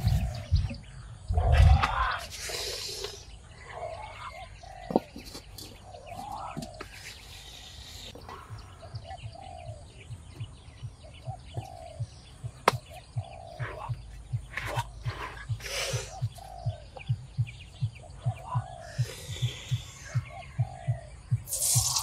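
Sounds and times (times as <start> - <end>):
short falling bird calls: 0.0 - 22.0.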